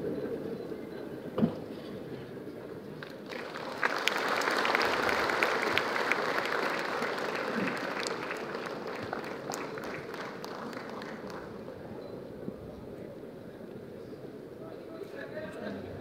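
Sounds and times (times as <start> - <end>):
audience applauding: 3.0 - 11.9.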